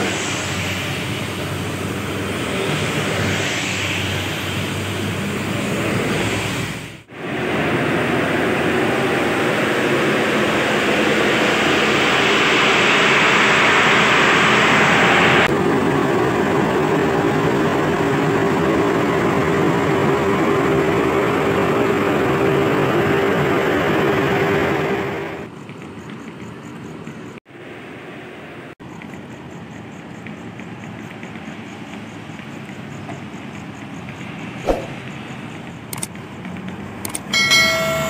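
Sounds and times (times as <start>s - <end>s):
loud air hiss: 0.0s - 7.6s
diesel coach passing: 0.0s - 16.2s
diesel coaches idling drone: 0.0s - 25.5s.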